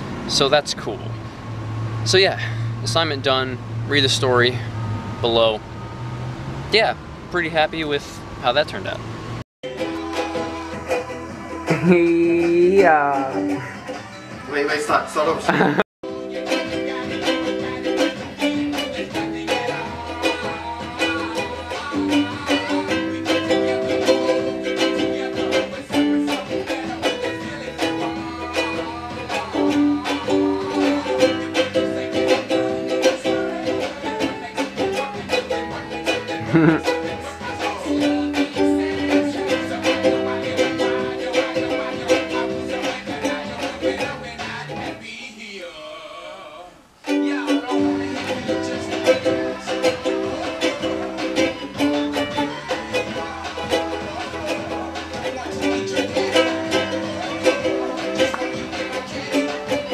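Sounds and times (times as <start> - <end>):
ukulele strumming: 9.6 - 13.7, 15.3 - 45.0, 47.0 - 59.9.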